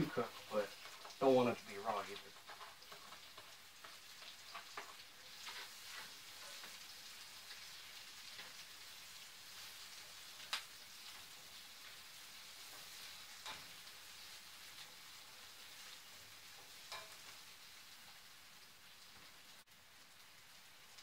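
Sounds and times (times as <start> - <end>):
onion sizzling in skillet: 0.0 - 21.0.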